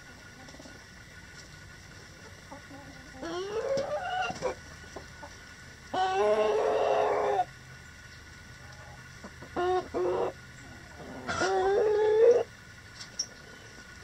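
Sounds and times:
chicken calling: 2.1s - 7.6s, 8.6s - 12.6s.

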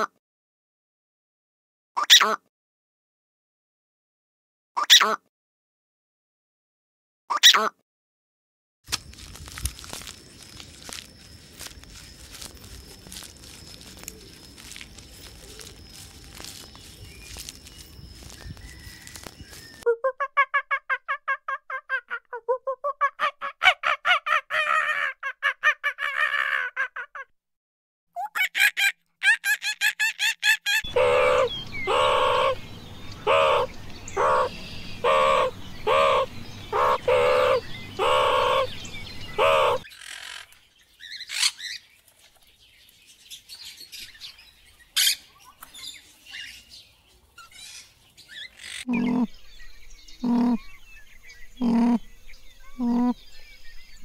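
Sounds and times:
faint bird chirps: 11.2s - 19.9s, 30.9s - 54.0s
birds squawking: 28.4s - 41.8s, 45.0s - 46.6s, 47.4s - 49.4s, 50.2s - 50.8s, 51.6s - 53.2s.

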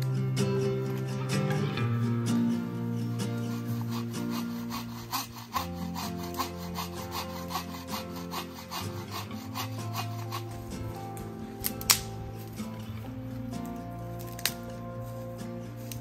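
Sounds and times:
background music with chords: 0.0s - 16.0s
hand saw cutting wood: 3.0s - 12.8s.

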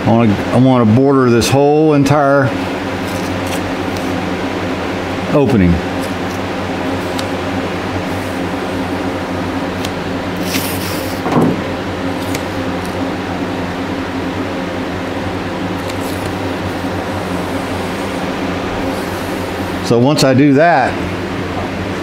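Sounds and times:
steady machine hum: 0.0s - 22.0s
masking tape pulled off roll: 9.8s - 11.2s.

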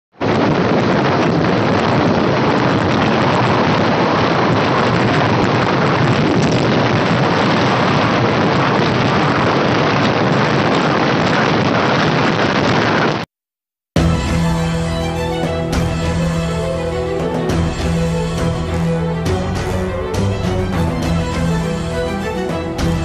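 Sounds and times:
wind rushing over microphone: 0.1s - 13.3s.

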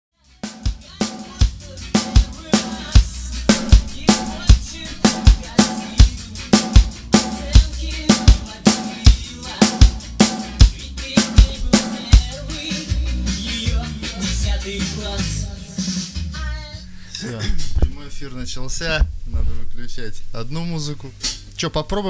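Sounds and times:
bass drum thumps: 1.4s - 12.5s, 18.9s - 19.8s
snare drum hits: 3.5s - 12.3s.

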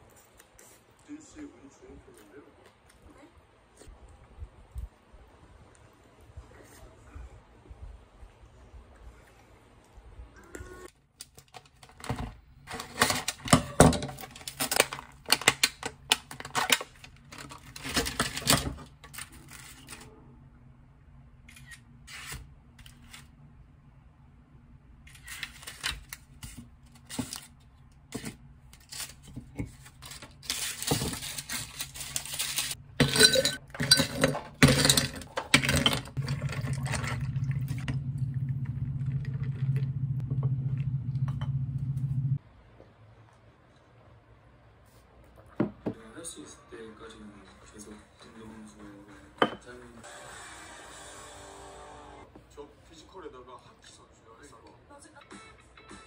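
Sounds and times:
dishes and glass clinking on stone: 33.0s - 36.0s
steady low hum: 36.2s - 43.2s.

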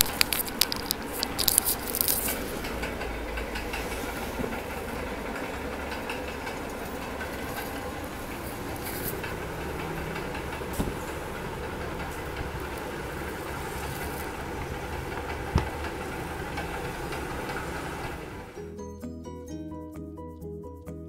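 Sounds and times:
low rumble and hiss: 0.0s - 18.6s.

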